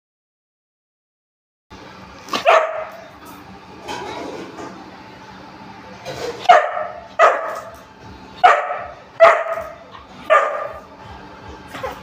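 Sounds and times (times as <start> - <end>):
dog barking: 2.4 - 3.0, 6.4 - 7.8, 8.4 - 10.9.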